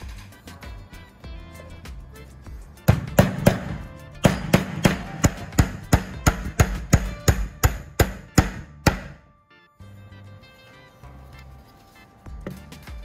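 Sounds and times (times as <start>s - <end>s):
faint background music: 0.0s - 13.0s
hammer striking with ringing: 2.9s - 9.2s.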